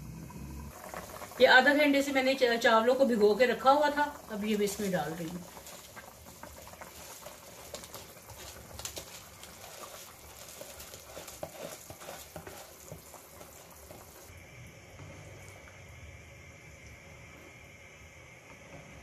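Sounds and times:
stock bubbling and crackling: 0:00.0 - 0:14.3.

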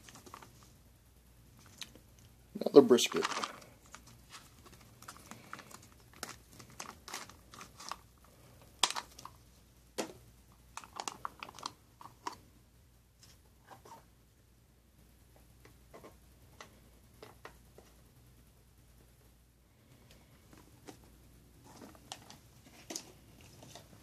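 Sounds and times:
foil pouch crinkling: 0:00.0 - 0:00.7, 0:02.7 - 0:08.2, 0:08.8 - 0:09.4, 0:10.7 - 0:12.4.

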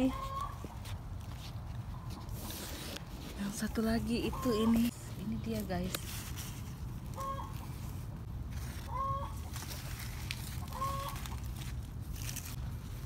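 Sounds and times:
bird calling: 0:07.1 - 0:08.0, 0:08.6 - 0:11.7.

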